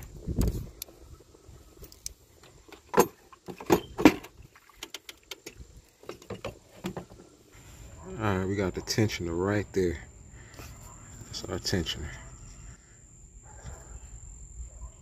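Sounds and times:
metal bolts clinking: 2.7s - 4.3s.

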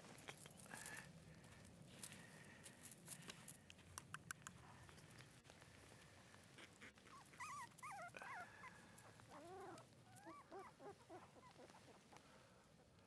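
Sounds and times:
puppies whimpering: 6.8s - 12.1s.

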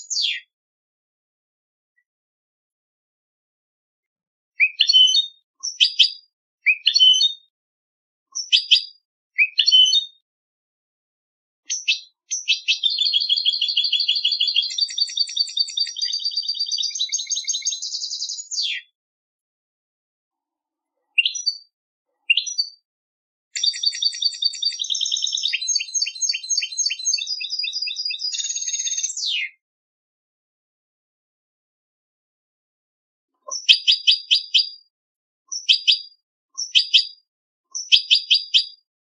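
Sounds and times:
goldfinch song trills: 11.7s - 18.8s, 23.6s - 29.3s.

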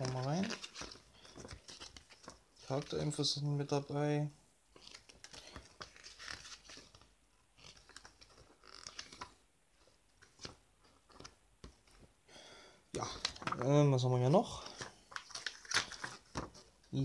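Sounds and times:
paper pages turning: 0.0s - 3.1s, 4.7s - 12.1s, 13.0s - 13.8s, 14.6s - 16.8s.

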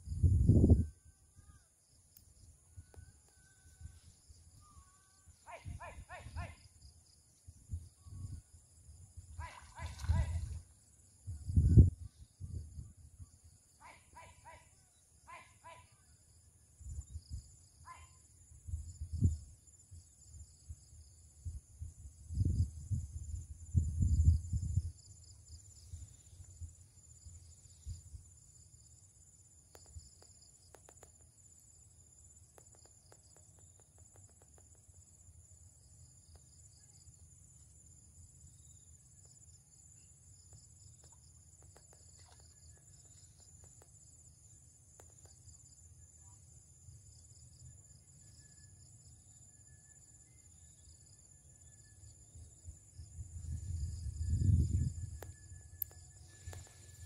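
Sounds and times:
insect pulsing trill: 0.0s - 57.0s
insects chirring: 0.0s - 57.0s.

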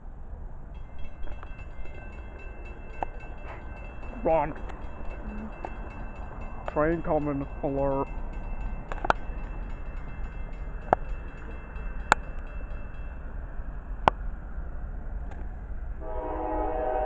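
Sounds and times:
locomotive horn: 16.0s - 17.0s.

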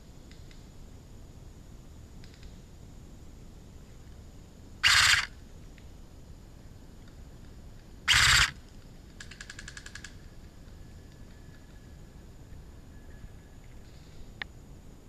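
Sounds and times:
airsoft gun bursts: 4.8s - 5.3s, 8.1s - 8.6s.

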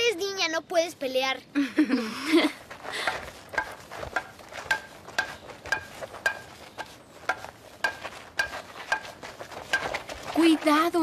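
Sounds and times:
wooden sticks clacking: 3.1s - 10.5s.

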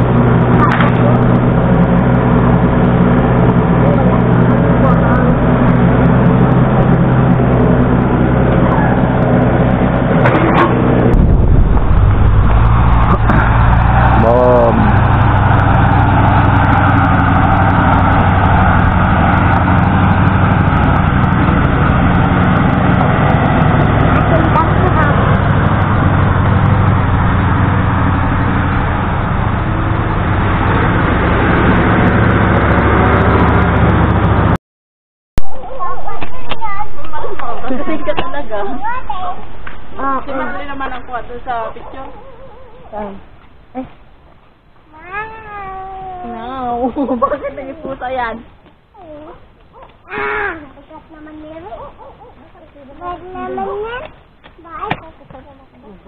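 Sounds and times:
short rising whine: 0.0s - 34.5s
excavator diesel engine under load: 0.0s - 34.6s.

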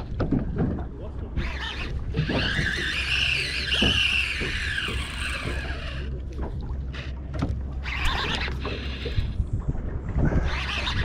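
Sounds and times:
sharp clicks and knocks: 0.0s - 0.9s
boat motor humming: 0.0s - 11.0s.

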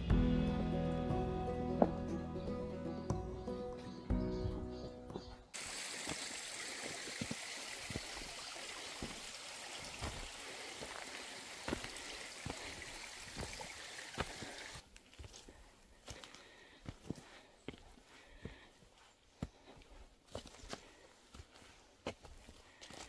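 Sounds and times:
stream water running: 5.5s - 14.9s.

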